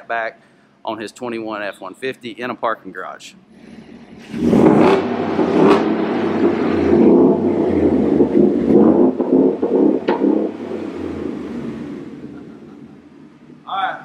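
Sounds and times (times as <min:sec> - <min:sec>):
loud exhaust rumble: 0:03.4 - 0:14.0.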